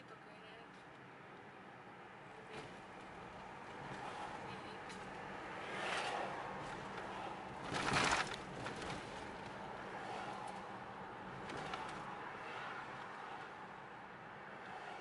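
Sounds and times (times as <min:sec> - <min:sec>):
car road and engine noise: 0:00.0 - 0:15.0.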